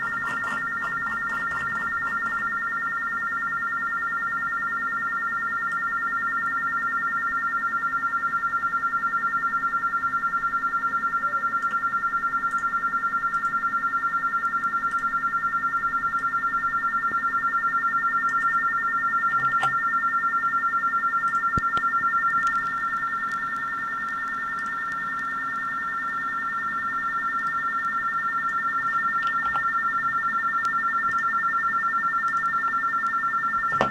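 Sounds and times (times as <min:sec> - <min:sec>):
warbling two-tone radio data signal: 0:10.8 - 0:12.1.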